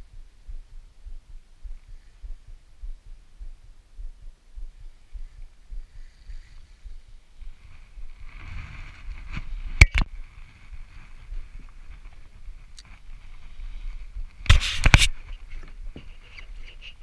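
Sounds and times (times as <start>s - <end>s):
faint steady hiss: 0.0s - 17.0s
camera knocks and rubbing: 14.5s - 16.2s.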